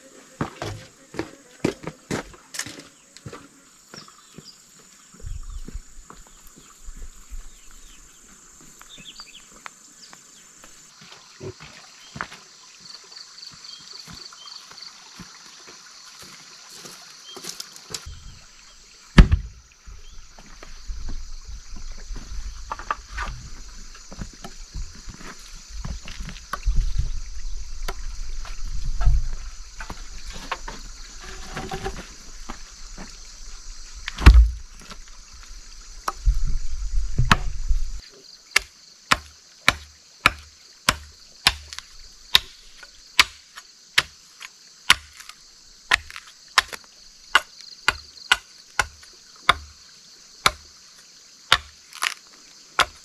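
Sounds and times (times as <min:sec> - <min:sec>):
log thumping on dirt: 0:00.4 - 0:03.4, 0:19.2 - 0:19.6, 0:28.8 - 0:33.2, 0:34.0 - 0:35.1, 0:37.2 - 0:37.7, 0:38.6 - 0:44.2, 0:44.9 - 0:49.8, 0:50.4 - 0:50.7, 0:51.5 - 0:52.2, 0:52.8 - 0:53.0
wooden log knocks: 0:19.2 - 0:19.5, 0:34.2 - 0:34.7.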